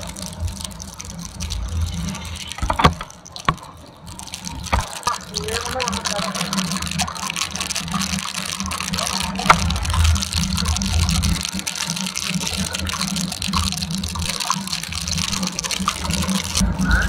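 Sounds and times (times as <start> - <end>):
rain and tyre spray hissing: 0.0 - 17.0
motorcycle engine drone: 16.5 - 17.0.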